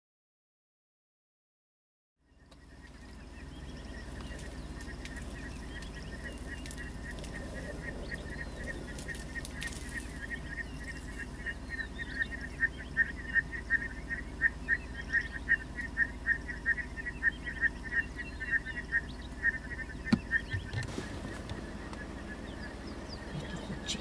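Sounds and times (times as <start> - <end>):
high bird chirps: 2.3 - 24.0
bird calling short notes: 4.9 - 24.0.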